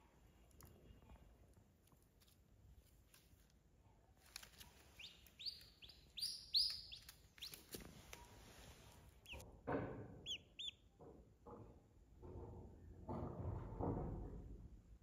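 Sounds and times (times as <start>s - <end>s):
duckling peeping: 4.7s - 8.4s, 9.2s - 9.4s, 10.2s - 10.9s.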